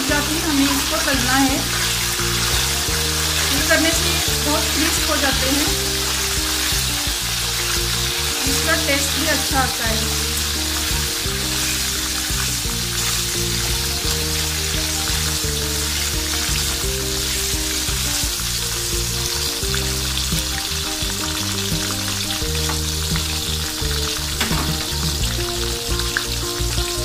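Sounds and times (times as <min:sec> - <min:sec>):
slotted spatula stirring: 0:00.0 - 0:13.8
fries sizzling in hot oil: 0:00.0 - 0:27.0
soft background music: 0:00.0 - 0:27.0.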